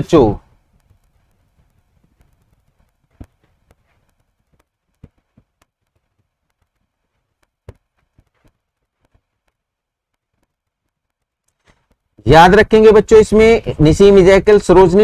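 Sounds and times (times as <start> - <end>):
faint clicks and taps: 0.4 - 12.2.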